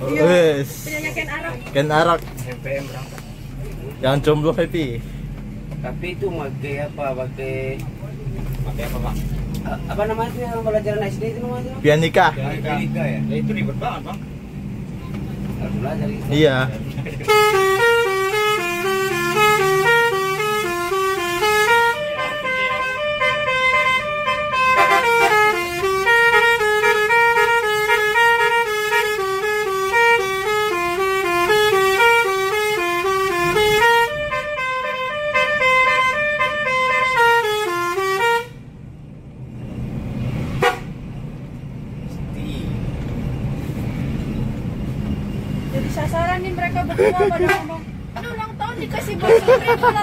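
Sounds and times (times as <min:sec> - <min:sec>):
bus rumbling on road: 0:00.0 - 0:50.0
musical bus horn tune: 0:17.2 - 0:38.7, 0:40.4 - 0:41.0, 0:47.2 - 0:47.9.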